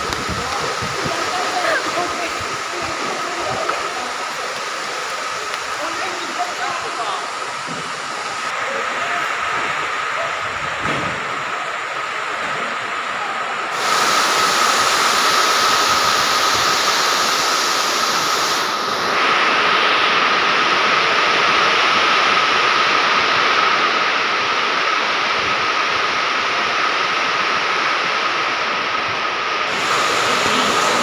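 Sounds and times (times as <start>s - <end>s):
loud rushing noise: 0.0s - 13.0s, 13.7s - 23.2s, 29.6s - 31.0s.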